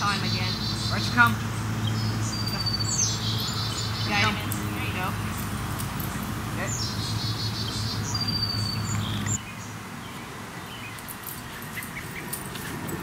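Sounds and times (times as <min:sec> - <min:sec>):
steady low hum: 0:00.0 - 0:09.8
small birds chirping: 0:00.0 - 0:13.0.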